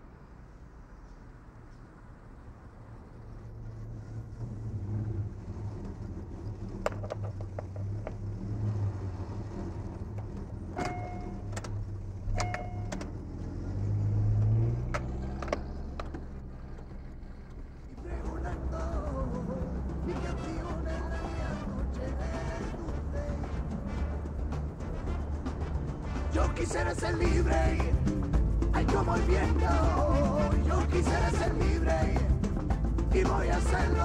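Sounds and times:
car engine humming: 0:00.0 - 0:34.0
clicks: 0:10.0 - 0:13.2
short beeps: 0:10.8 - 0:11.6, 0:12.4 - 0:13.1.

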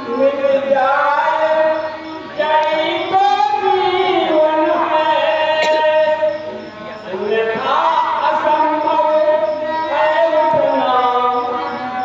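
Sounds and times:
man chanting through loudspeaker: 0:00.0 - 0:12.0.

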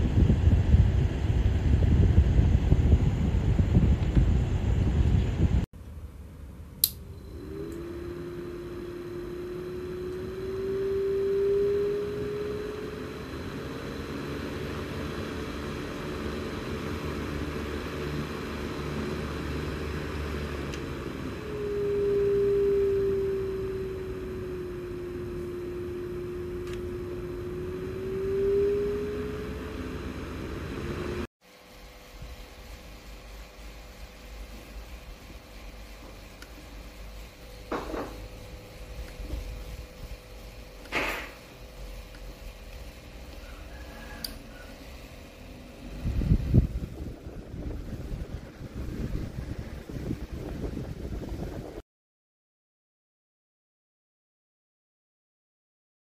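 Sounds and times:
fan motor humming: 0:00.0 - 0:51.8
fan switch click: 0:06.8 - 0:07.1, 0:44.2 - 0:44.4.

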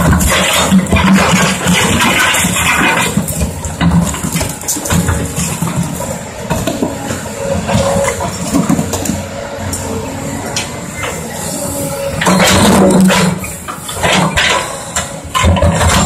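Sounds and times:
concrete chunks clattering: 0:00.0 - 0:06.9
excavator diesel engine under load: 0:00.0 - 0:16.0.

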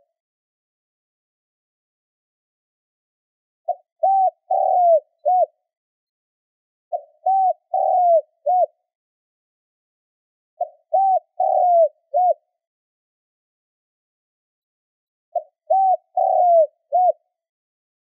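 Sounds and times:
dove cooing: 0:03.7 - 0:05.6, 0:06.9 - 0:08.8, 0:10.6 - 0:12.5, 0:15.4 - 0:17.2.

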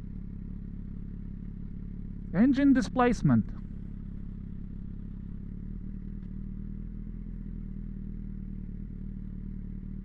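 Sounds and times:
motorcycle engine idling: 0:00.0 - 0:10.0.

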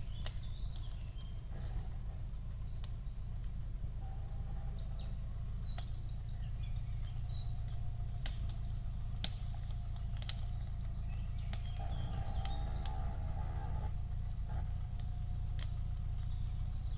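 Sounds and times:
sharp snaps: 0:00.0 - 0:01.4, 0:05.5 - 0:16.9
birds chirping: 0:00.0 - 0:16.9
car engine running low: 0:00.0 - 0:16.9.

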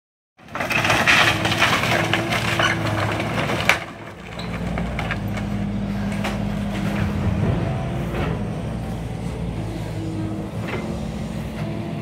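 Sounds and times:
loud wood crack: 0:00.4 - 0:08.4
wood cracking and splintering: 0:00.4 - 0:08.4
machine engine running: 0:00.5 - 0:12.0.

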